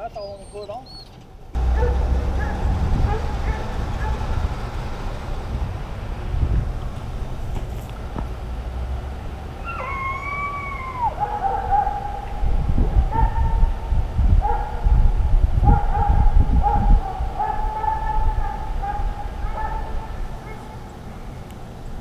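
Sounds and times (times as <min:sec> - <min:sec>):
hounds bawling: 0:00.8 - 0:05.0, 0:09.6 - 0:13.8, 0:15.7 - 0:21.0
hound howling: 0:09.6 - 0:12.4.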